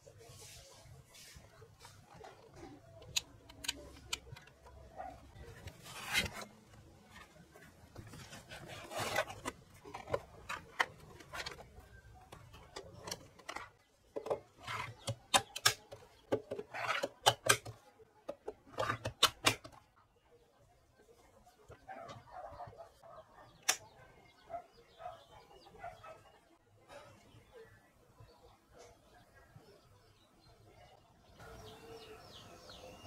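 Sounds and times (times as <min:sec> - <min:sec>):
plastic packs rubbing and scraping: 0:05.1 - 0:17.7
sharp plastic clicks and knocks: 0:12.3 - 0:19.8.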